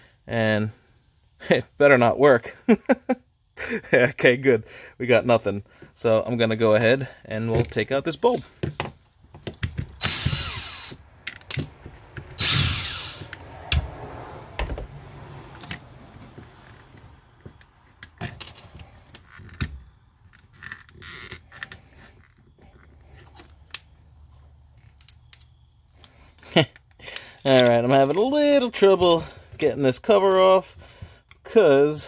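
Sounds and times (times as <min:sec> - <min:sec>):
power driver spinning: 0:09.9 - 0:14.0.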